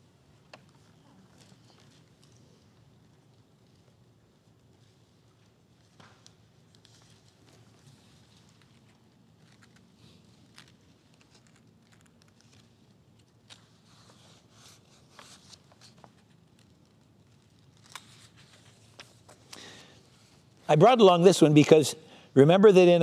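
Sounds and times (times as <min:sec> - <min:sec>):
book pages being turned: 0:04.8 - 0:20.5.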